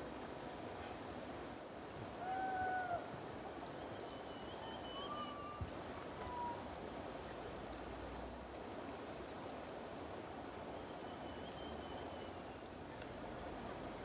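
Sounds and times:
faint high whistle: 3.9 - 5.7, 10.7 - 12.4.

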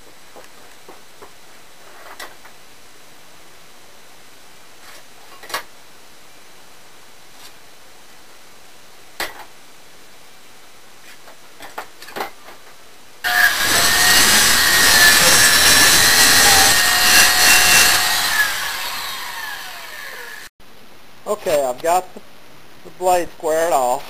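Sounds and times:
circular saw cutting wood: 13.2 - 20.5.

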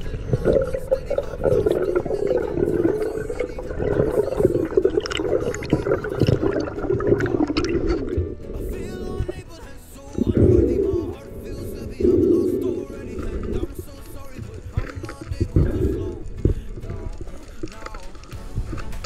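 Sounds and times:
water gurgling underwater: 0.0 - 9.5, 10.2 - 19.0
scattered clicks: 12.6 - 19.0.

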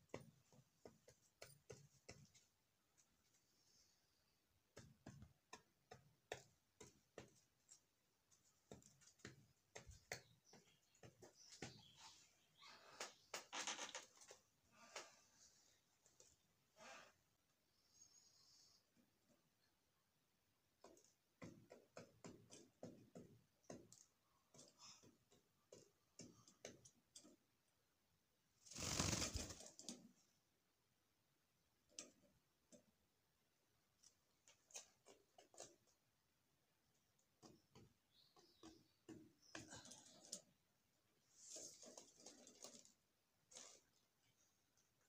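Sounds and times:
dove pecking seed off wooden floor: 4.7 - 12.0, 20.7 - 27.5, 28.6 - 30.1, 31.9 - 33.0, 33.9 - 36.1, 37.0 - 40.6, 41.3 - 44.0.

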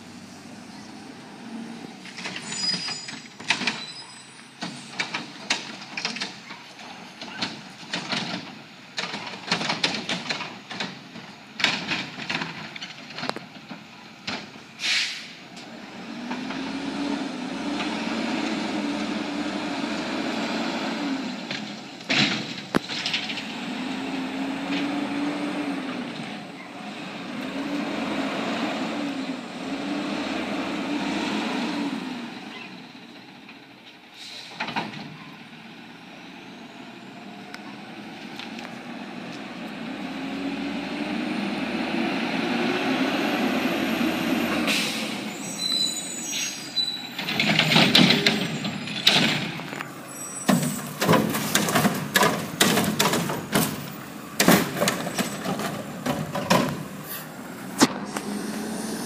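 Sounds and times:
air brake hiss: 14.8 - 15.4, 34.1 - 34.6, 44.6 - 45.3
truck engine revving: 15.5 - 33.0, 36.4 - 59.0
cart banging into hopper: 47.2 - 49.7, 50.4 - 56.9
knocks and clanks: 47.2 - 57.0.

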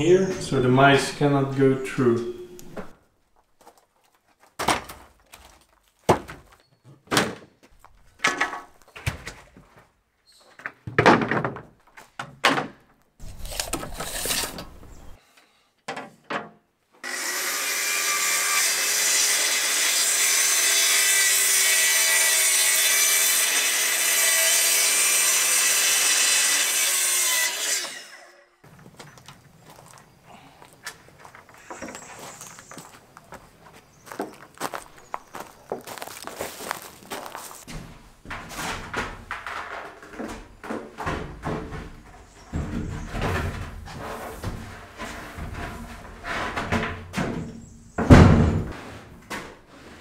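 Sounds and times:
wooden knocks and scrapes: 10.5 - 15.2, 34.1 - 50.0
track saw cutting board: 13.2 - 14.7, 17.0 - 28.4.

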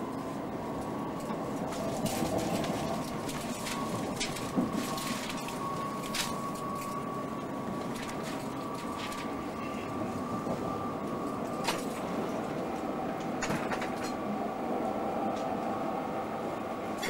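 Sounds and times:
train coach rumble: 0.0 - 17.0
train wheels clicking over rail joints: 13.2 - 14.2.

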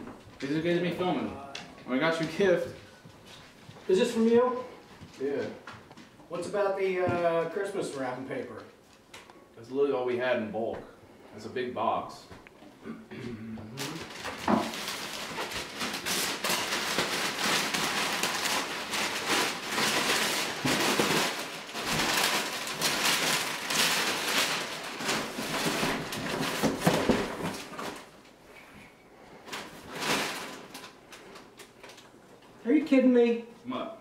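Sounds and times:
wrapping paper tearing and crumpling: 13.8 - 28.2, 29.4 - 32.1.

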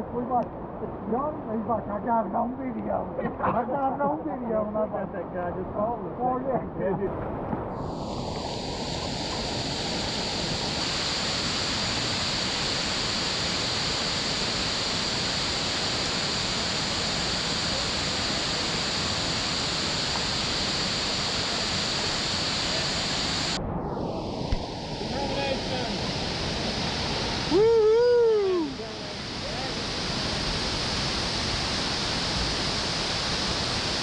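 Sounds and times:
waterfall rushing: 7.8 - 23.6, 24.6 - 34.0.

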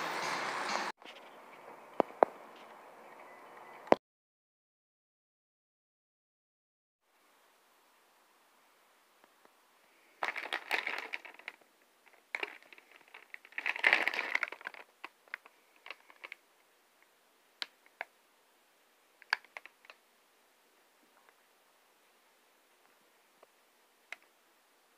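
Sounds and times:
plastic package crinkling: 10.2 - 16.4, 19.2 - 20.0.

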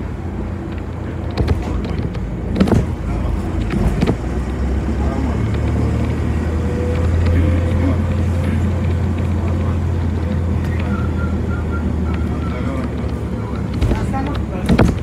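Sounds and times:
bus engine and road rumble: 0.0 - 15.0
sharp knocks and rattles: 0.7 - 4.6, 12.9 - 15.0.

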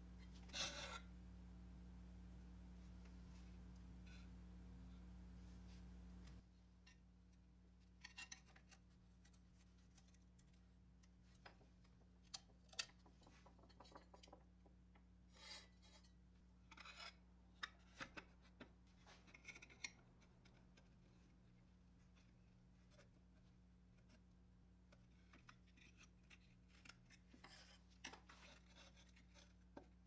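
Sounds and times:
faint steady hum: 0.0 - 30.0
metal toy parts clicking and scraping: 8.0 - 8.8.

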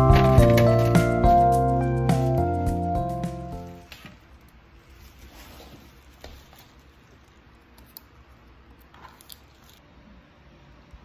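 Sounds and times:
plastic wrapper rustling: 0.0 - 1.5, 3.8 - 7.6.

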